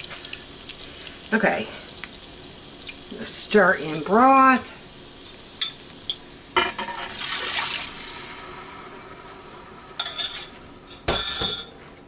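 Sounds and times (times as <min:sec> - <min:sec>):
liquid pouring into pot: 0:04.9 - 0:09.1
utensils clinking on pot: 0:10.0 - 0:11.8.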